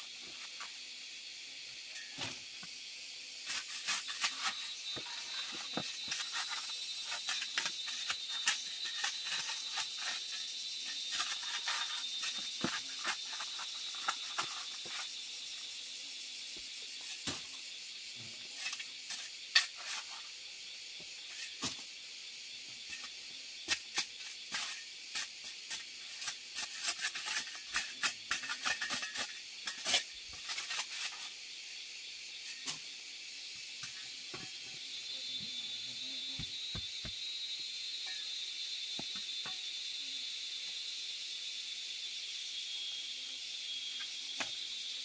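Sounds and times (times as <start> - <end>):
tools scraping dirt floor: 0.0 - 0.9, 1.7 - 2.8, 3.4 - 15.7, 16.6 - 17.6, 18.3 - 20.4, 21.0 - 21.9, 22.8 - 31.4, 32.4 - 33.0, 33.8 - 34.9, 39.0 - 39.6
steady high hiss: 0.0 - 45.0.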